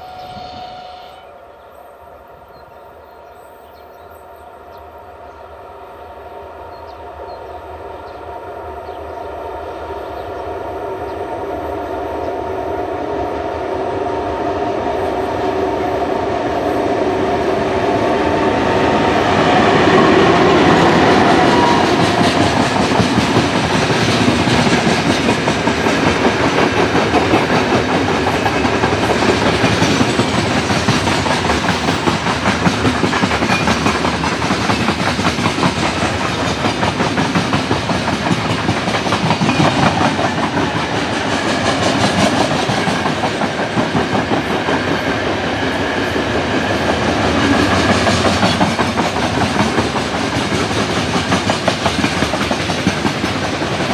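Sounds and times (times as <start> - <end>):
diesel locomotive engines: 0.0 - 53.9
wheels clacking over rail joints: 19.9 - 53.9.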